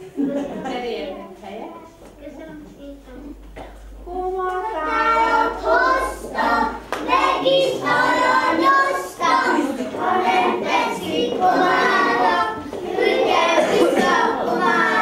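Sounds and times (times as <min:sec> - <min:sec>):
children singing: 0:04.1 - 0:15.0.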